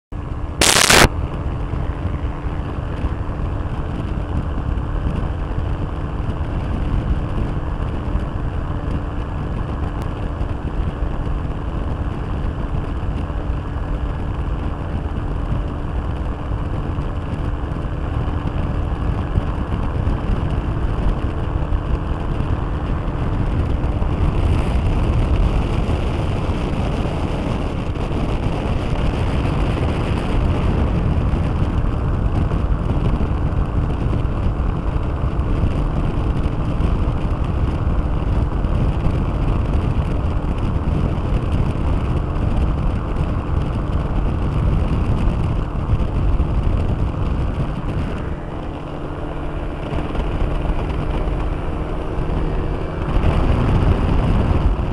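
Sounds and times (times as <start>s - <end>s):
aircraft engine running: 0.1s - 54.9s
wind rush on microphone: 0.1s - 54.9s.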